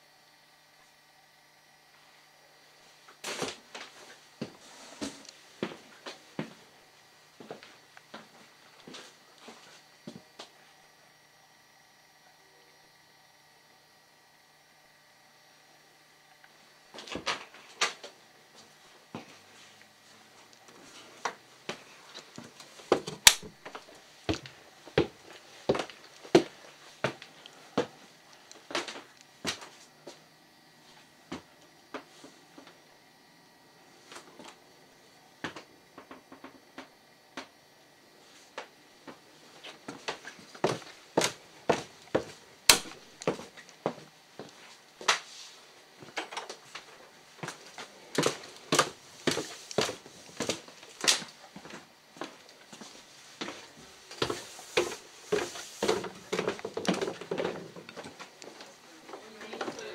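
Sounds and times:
footsteps on wooden stairs: 0:22.4 - 0:28.0, 0:39.1 - 0:44.6, 0:47.4 - 0:59.9
sharp click: 0:23.2 - 0:23.5, 0:42.7 - 0:43.0.

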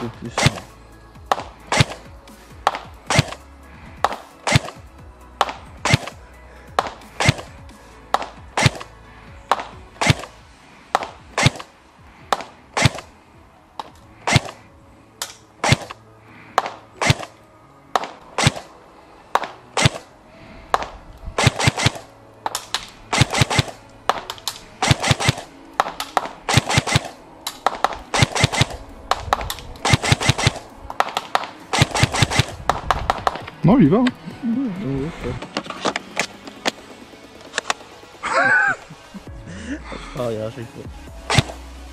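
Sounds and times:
airsoft gun shots: 0:00.3 - 0:00.7, 0:01.3 - 0:06.2, 0:06.8 - 0:08.9, 0:09.5 - 0:10.3, 0:10.9 - 0:11.7, 0:12.3 - 0:13.1, 0:13.8 - 0:14.6, 0:15.2 - 0:16.0, 0:16.6 - 0:18.7, 0:19.3 - 0:20.1, 0:20.7 - 0:33.5, 0:41.2 - 0:41.6.

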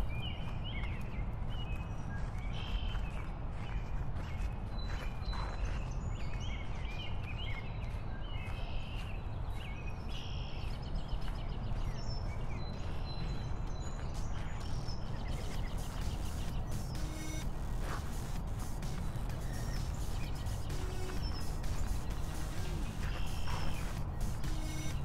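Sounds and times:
birds chirping and singing: 0:00.0 - 0:25.0
steady low rumble: 0:11.5 - 0:25.0.

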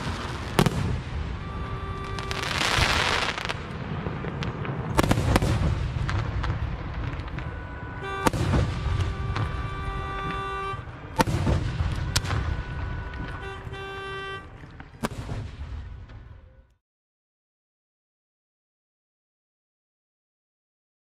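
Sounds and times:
fireworks bangs: 0:00.0 - 0:16.7.

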